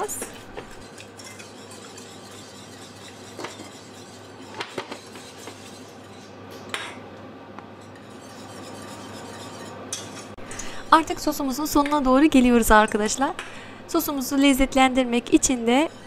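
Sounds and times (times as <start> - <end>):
whisk clinking against metal pan: 0.0 - 6.9, 7.8 - 10.4
whisk stirring sauce: 0.2 - 6.4, 7.8 - 10.2.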